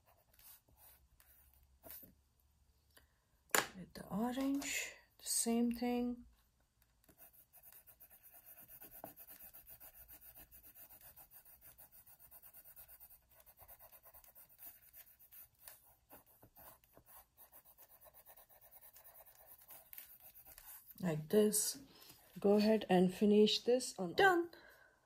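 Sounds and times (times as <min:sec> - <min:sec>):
colored pencil scratching on paper: 0:00.0 - 0:02.1, 0:07.0 - 0:21.0.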